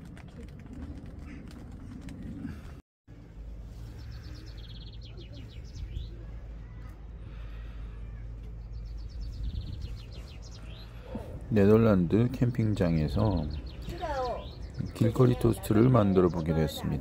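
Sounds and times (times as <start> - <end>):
steady low rumble: 0.0 - 15.1
songbird singing trill: 12.6 - 16.5.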